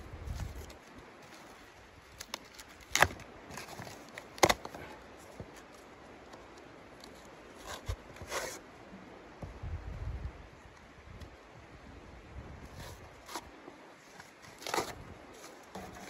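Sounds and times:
cardboard rustling and tearing: 0:00.2 - 0:05.8, 0:12.7 - 0:16.0.

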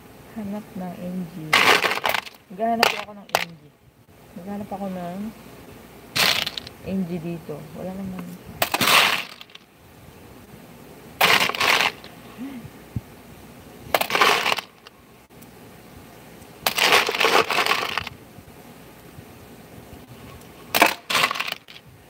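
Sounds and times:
small metal parts rattling: 0:01.6 - 0:03.6, 0:06.2 - 0:06.7, 0:08.6 - 0:09.6, 0:11.2 - 0:12.1, 0:14.0 - 0:14.9, 0:16.7 - 0:18.1, 0:20.7 - 0:21.8.

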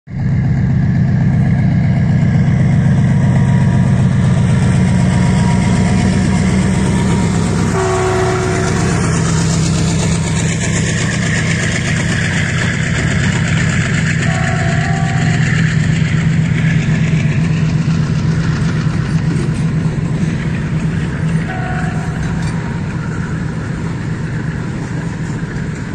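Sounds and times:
diesel locomotive engine drone: 0:00.1 - 0:25.9
brief higher tone: 0:04.8 - 0:11.4, 0:14.2 - 0:15.5, 0:21.5 - 0:23.2.

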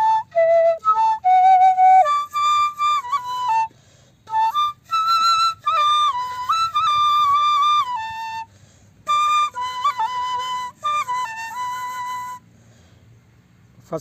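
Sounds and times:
bamboo flute melody: 0:00.0 - 0:12.5.

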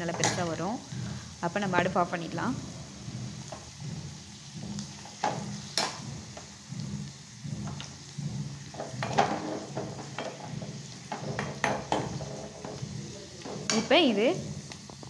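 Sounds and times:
nuts frying in ghee sizzling: 0:00.0 - 0:15.0
metal ladle scraping and clinking: 0:08.7 - 0:13.9.

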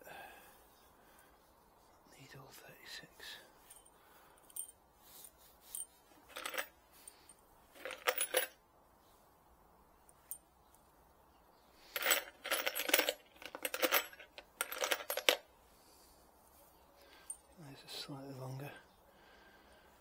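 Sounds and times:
metal screws rattling in plastic tub: 0:05.7 - 0:06.7, 0:07.7 - 0:08.5, 0:11.9 - 0:15.4.

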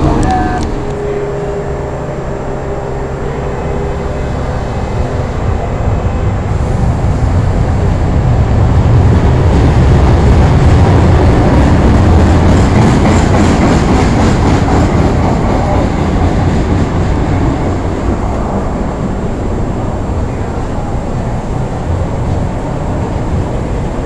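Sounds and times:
clickety-clack over rail joints: 0:00.0 - 0:01.0, 0:10.6 - 0:19.3
subway train rumbling past: 0:00.0 - 0:24.0.

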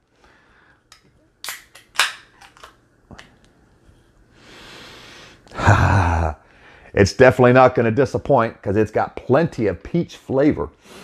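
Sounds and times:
beer can cracking open: 0:01.4 - 0:02.8
person sniffing: 0:10.8 - 0:11.0.

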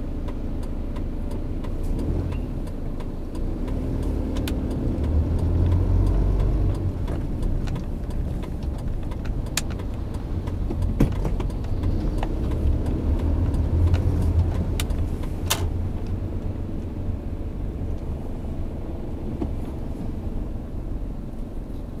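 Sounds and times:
car engine and tyres rumbling: 0:00.0 - 0:22.0
sharp clicks: 0:00.3 - 0:16.2.

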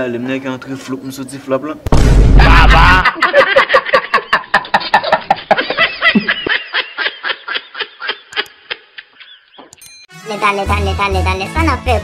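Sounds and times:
person laughing: 0:02.4 - 0:09.6.

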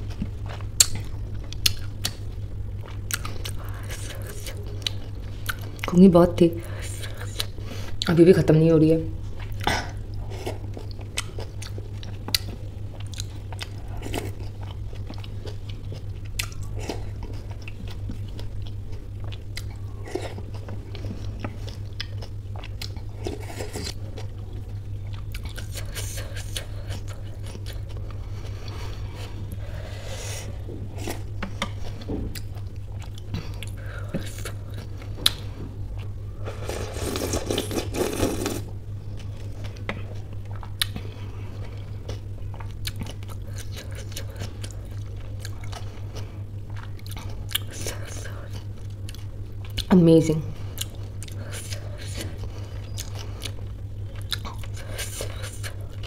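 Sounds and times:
steady low hum: 0:00.0 - 0:56.0
wet chewing: 0:09.4 - 0:29.8, 0:30.4 - 0:49.9, 0:50.6 - 0:56.0
slurping liquid: 0:36.4 - 0:38.7
lip and tongue clicks: 0:54.2 - 0:55.8.

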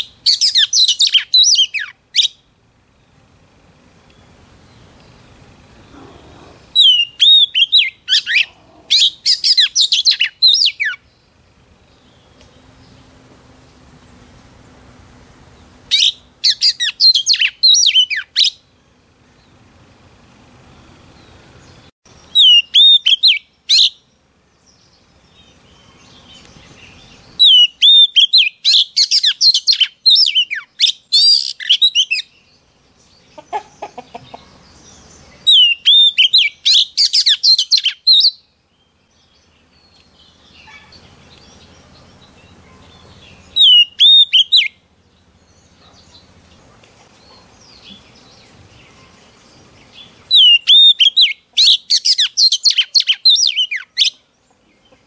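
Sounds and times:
bird singing whistles and twitters: 0:00.0 - 0:02.4, 0:06.8 - 0:11.0, 0:15.9 - 0:18.6, 0:22.3 - 0:24.0, 0:27.4 - 0:32.3, 0:35.4 - 0:38.4, 0:43.5 - 0:44.8, 0:50.3 - 0:54.2.

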